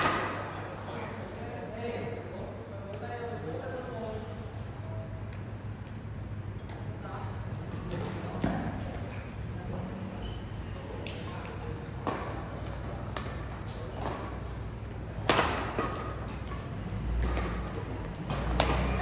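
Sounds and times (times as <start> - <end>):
rackets striking shuttlecock: 11.0 - 14.5, 15.1 - 19.0
short high squeak: 13.6 - 14.4.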